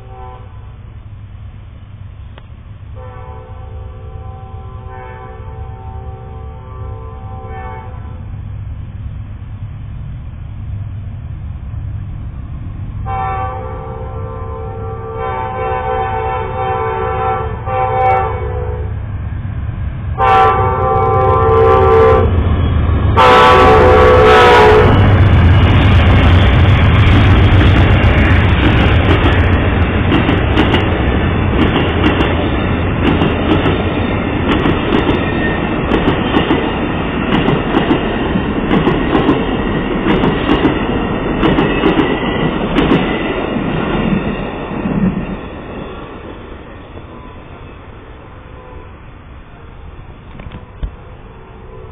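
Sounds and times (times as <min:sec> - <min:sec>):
train horn blasts: 0:00.0 - 0:00.8, 0:03.0 - 0:08.3, 0:13.0 - 0:19.0, 0:20.2 - 0:22.4, 0:23.2 - 0:25.1, 0:47.1 - 0:49.1, 0:50.5 - 0:51.9
wheels clacking over rail joints: 0:25.0 - 0:47.0.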